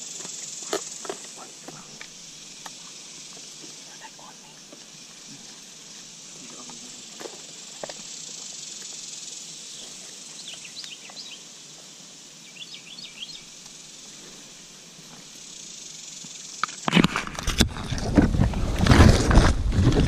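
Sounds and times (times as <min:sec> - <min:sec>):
insects hissing: 0:00.0 - 0:20.0
bird chirping: 0:09.1 - 0:11.5, 0:12.4 - 0:13.6.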